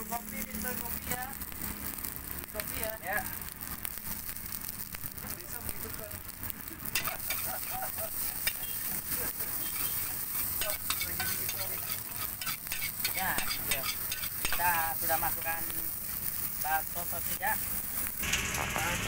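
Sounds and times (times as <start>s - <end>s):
rice sizzling: 0.0s - 19.0s
metal spatula scraping a wok: 6.9s - 15.5s.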